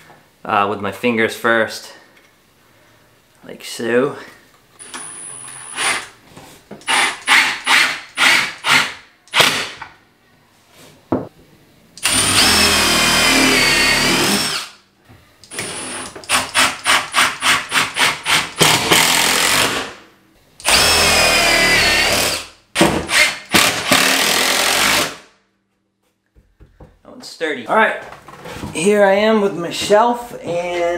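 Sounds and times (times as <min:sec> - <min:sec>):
cordless drill driving screws: 0:04.8 - 0:06.1, 0:06.8 - 0:09.8, 0:12.0 - 0:14.7, 0:15.5 - 0:19.9, 0:20.6 - 0:22.4, 0:23.1 - 0:25.2.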